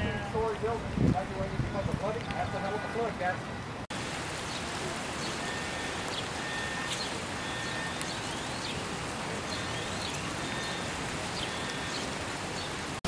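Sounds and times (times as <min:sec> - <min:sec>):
rain falling on water: 0:00.0 - 0:13.0
birds chirping: 0:01.7 - 0:03.2, 0:04.3 - 0:13.0.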